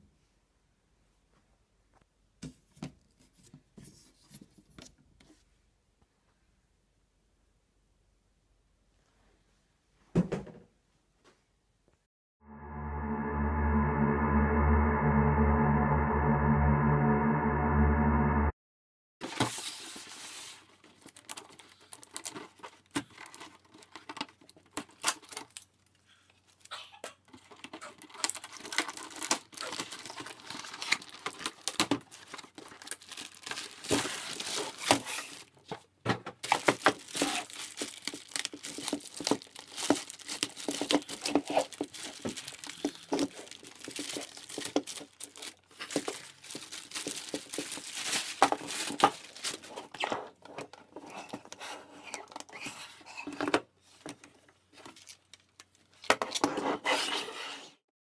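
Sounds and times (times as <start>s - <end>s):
plastic bag crinkling: 28.0s - 35.6s, 36.4s - 49.7s.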